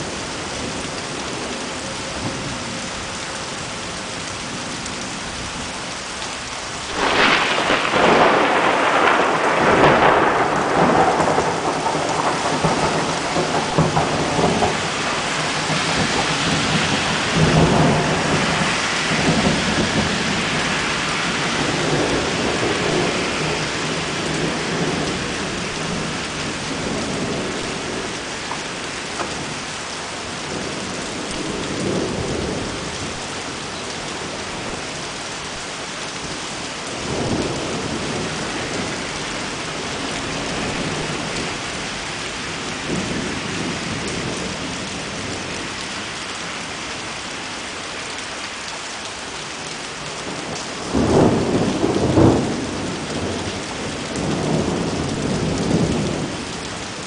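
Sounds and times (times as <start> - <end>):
heavy rain: 0.0 - 57.0
thunder rumbling: 6.9 - 35.2, 36.2 - 45.6, 50.3 - 56.6.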